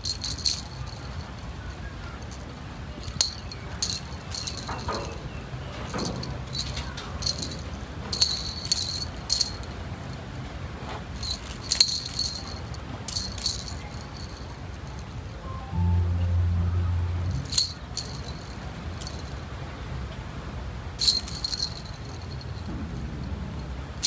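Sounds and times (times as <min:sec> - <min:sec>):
small bells jingling: 0:00.0 - 0:10.2, 0:11.2 - 0:16.0, 0:17.2 - 0:19.5, 0:21.0 - 0:22.8.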